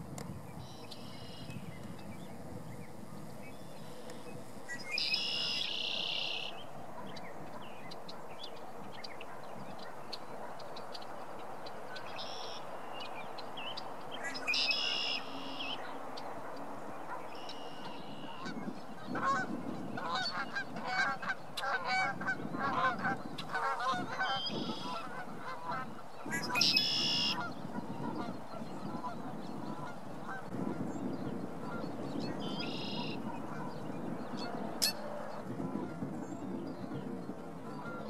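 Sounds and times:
blackbirds singing: 0:00.5 - 0:16.3, 0:16.9 - 0:38.0
birds honking: 0:03.8 - 0:06.6, 0:14.2 - 0:16.0, 0:17.0 - 0:30.5, 0:31.6 - 0:35.8.

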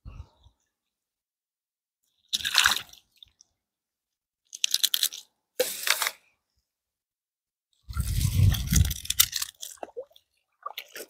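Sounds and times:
shells crunching and clattering: 0:04.5 - 0:05.3, 0:08.6 - 0:09.8.

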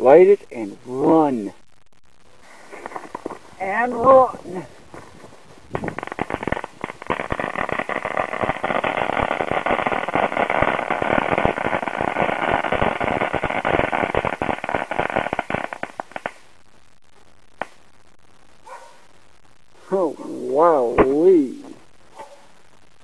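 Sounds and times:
firework crackling: 0:02.3 - 0:16.7, 0:19.8 - 0:23.0.

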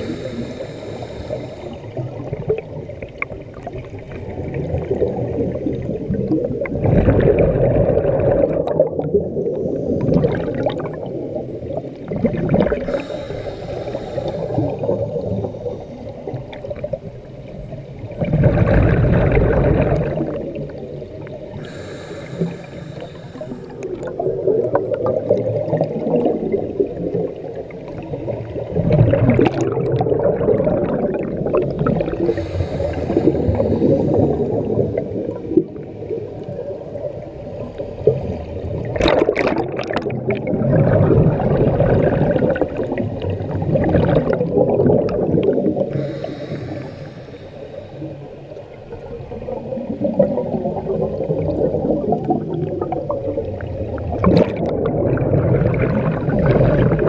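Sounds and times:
diver breathing through regulator: 0:00.0 - 0:02.1, 0:12.7 - 0:16.0, 0:21.5 - 0:24.3, 0:32.0 - 0:35.2, 0:45.7 - 0:48.5
bubbling exhalations: 0:04.4 - 0:15.7, 0:18.2 - 0:20.8, 0:28.0 - 0:35.8, 0:38.8 - 0:47.5, 0:49.4 - 0:57.0.

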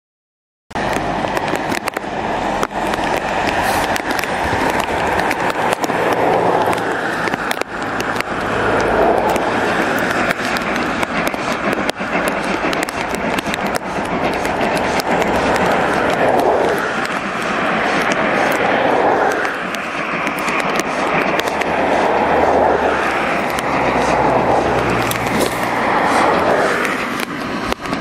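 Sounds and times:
sharp irregular clicks: 0:00.8 - 0:28.0
steam locomotive exhaust: 0:00.8 - 0:28.0.

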